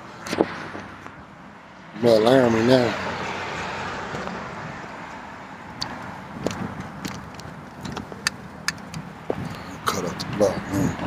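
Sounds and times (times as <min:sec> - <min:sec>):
car passing: 0:00.0 - 0:11.0
sharp light clicks and rattles: 0:05.8 - 0:09.1.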